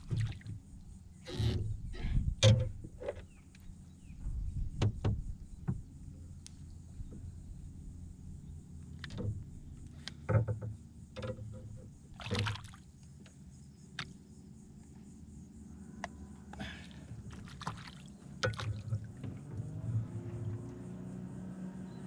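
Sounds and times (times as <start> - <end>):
water splashing against boat: 0.0 - 3.4, 4.4 - 13.2, 16.6 - 21.0.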